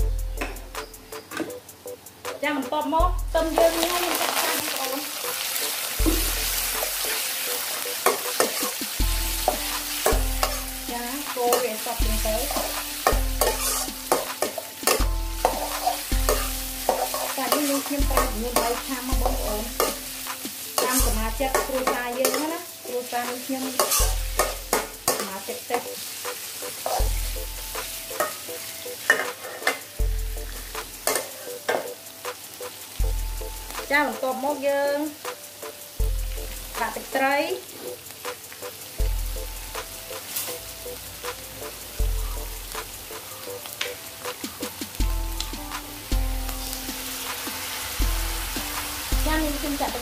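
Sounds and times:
food sizzling in a wok: 0.0s - 50.0s
metal spatula scraping pan: 12.4s - 20.0s, 23.7s - 25.3s, 26.8s - 27.2s, 29.1s - 29.8s.

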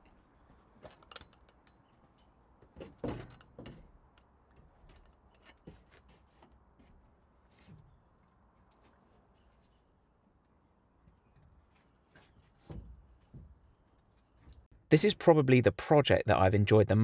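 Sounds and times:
wood knocking and scraping on wood: 2.0s - 8.0s, 11.4s - 14.7s.

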